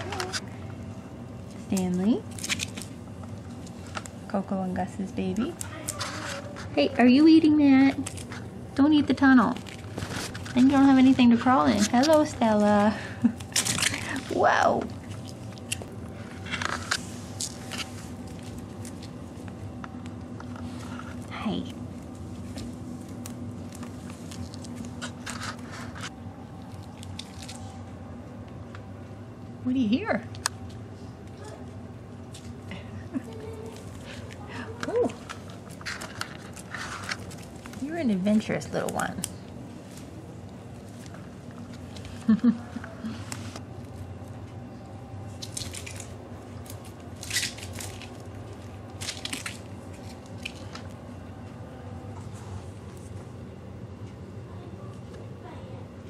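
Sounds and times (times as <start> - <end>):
steady low hum: 0.0 - 56.0
rabbits rustling and scraping: 5.7 - 6.8, 35.0 - 38.0
crunchy rustles: 9.5 - 28.0, 32.2 - 38.2, 45.2 - 51.1.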